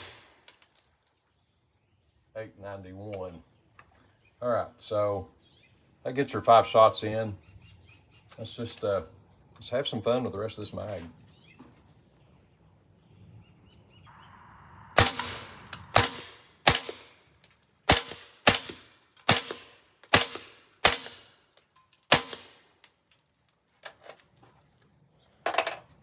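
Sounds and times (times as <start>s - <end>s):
suppressed rifle shots: 15.0s - 17.2s.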